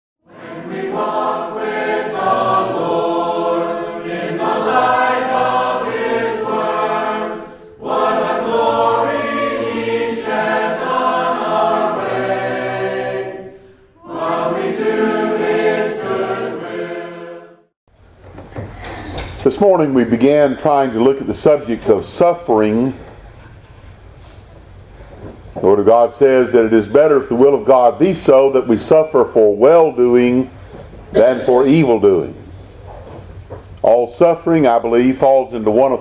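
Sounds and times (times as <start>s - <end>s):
group singing a hymn unaccompanied: 0.3s - 17.7s.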